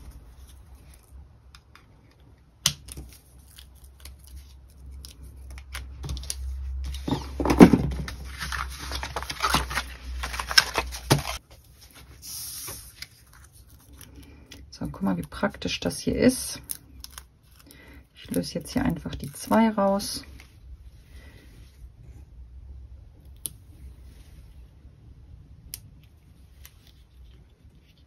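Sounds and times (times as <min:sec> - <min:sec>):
paper rustling and scraping: 0:04.2 - 0:14.3.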